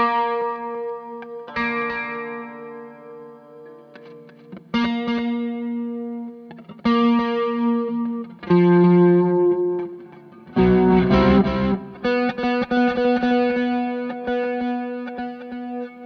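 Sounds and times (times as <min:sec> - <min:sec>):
distorted electric guitar: 0:00.0 - 0:16.0.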